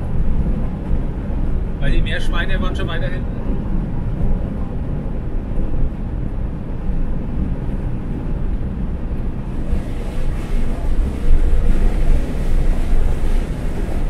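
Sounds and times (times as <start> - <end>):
tyres and engine rumble: 0.0 - 14.0
road hiss: 9.4 - 14.0.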